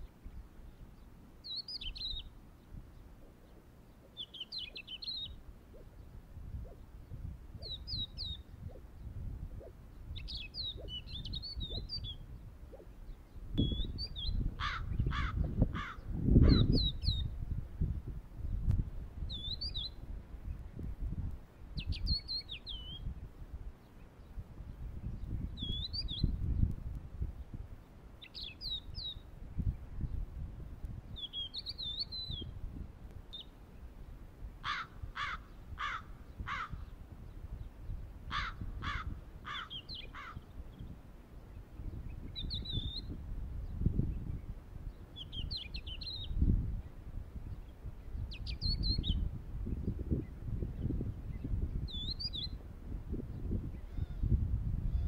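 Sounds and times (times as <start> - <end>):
birds chirping: 0.0 - 17.4, 31.1 - 32.6, 33.3 - 52.6.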